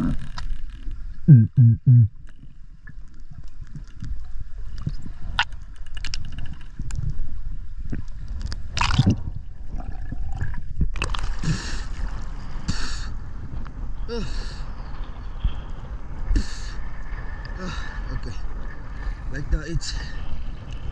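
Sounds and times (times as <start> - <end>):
faint underwater clicks: 2.2 - 9.2.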